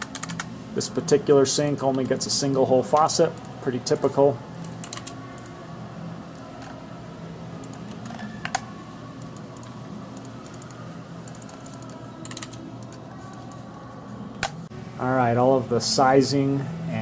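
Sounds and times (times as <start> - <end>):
keyboard keys clicking: 0.0 - 0.5, 9.2 - 13.0
steady low hum: 0.0 - 17.0.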